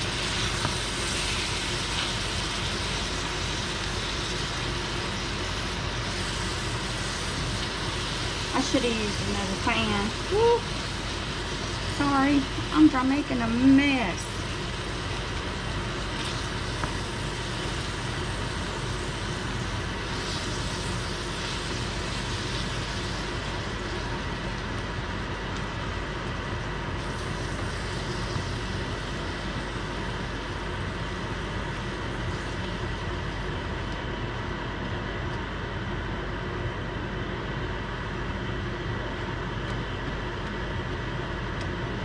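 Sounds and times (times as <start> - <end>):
greens sizzling in skillet: 0.0 - 26.4, 27.0 - 33.6
faint steady hum: 0.0 - 42.0.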